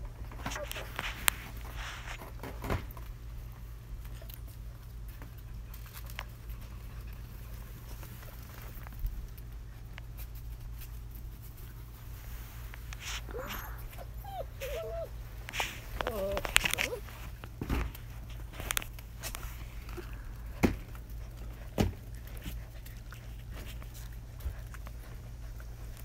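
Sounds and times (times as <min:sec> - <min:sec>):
puppies scuffling: 0:00.0 - 0:26.0
puppy whining: 0:13.0 - 0:17.4.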